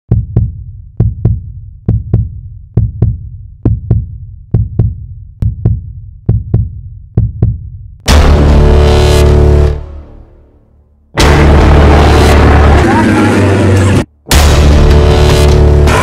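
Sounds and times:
heartbeat thumps: 0.1 - 8.6
sustained musical hit: 11.2 - 16.0.

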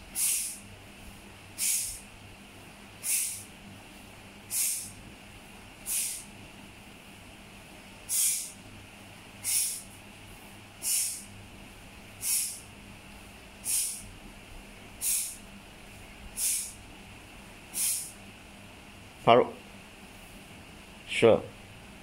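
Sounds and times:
short hissing swishes: 0.1 - 0.6, 1.6 - 2.1, 3.0 - 3.5, 4.5 - 5.0, 5.8 - 6.3, 8.1 - 8.6, 9.4 - 9.9, 10.8 - 11.3, 12.2 - 12.6, 13.6 - 14.1, 15.0 - 15.4, 16.4 - 16.8, 17.7 - 18.2.

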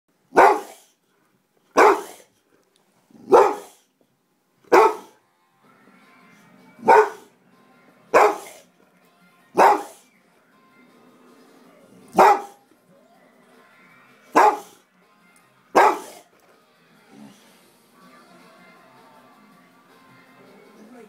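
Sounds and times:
dog barking: 0.3 - 0.9, 1.8 - 2.3, 3.2 - 3.8, 4.7 - 5.2, 6.8 - 7.3, 8.1 - 8.7, 9.6 - 10.0, 12.1 - 12.6, 14.3 - 14.8, 15.8 - 16.3.

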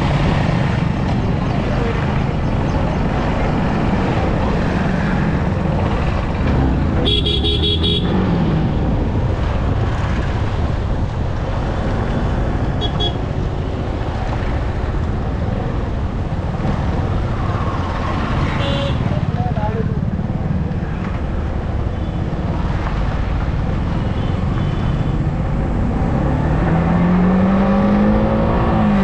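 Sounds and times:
motorcycle engine: 0.0 - 8.8
vehicle horn honking: 7.0 - 8.1, 12.8 - 13.2.

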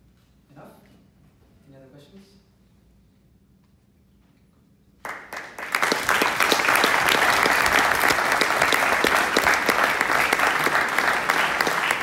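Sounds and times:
audience applauding: 5.0 - 12.0.

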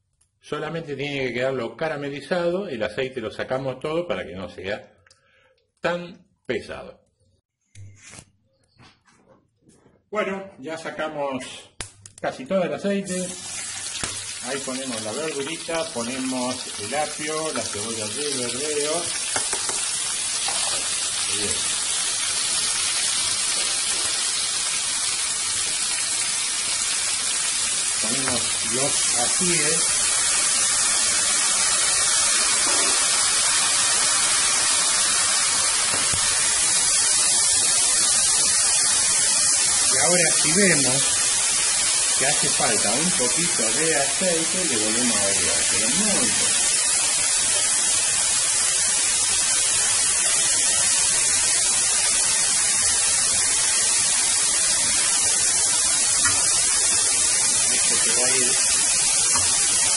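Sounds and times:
vegetables sizzling on hot metal: 11.9 - 59.9.

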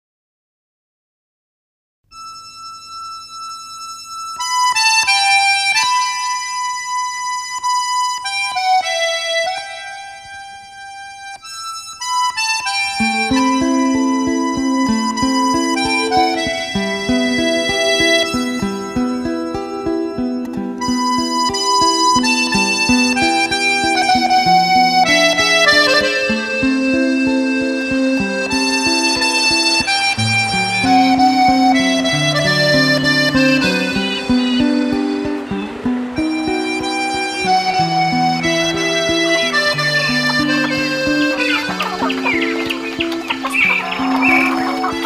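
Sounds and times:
reedy wind instrument melody: 2.1 - 45.0
plucked guitar notes: 12.2 - 45.0.

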